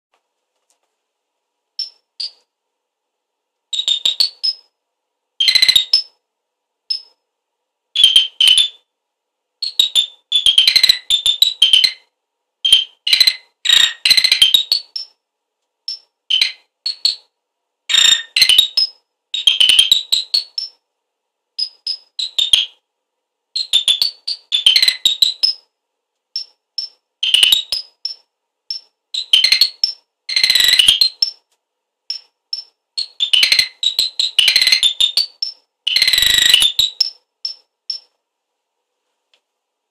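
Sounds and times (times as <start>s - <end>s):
electronic chirping warbles: 1.8s - 2.4s, 3.8s - 4.7s, 5.4s - 6.1s, 8.0s - 8.8s, 9.6s - 12.1s, 12.7s - 15.2s, 15.9s - 17.3s, 17.9s - 20.8s, 21.6s - 22.7s, 23.6s - 25.7s, 26.4s - 31.4s, 32.1s - 38.1s.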